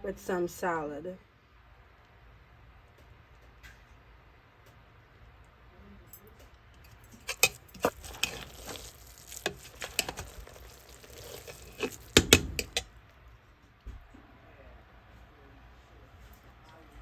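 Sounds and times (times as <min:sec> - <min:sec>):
spoon stirring rice in a pot: 0:06.8 - 0:12.9
spoon scraping and knocking pot: 0:06.9 - 0:12.9.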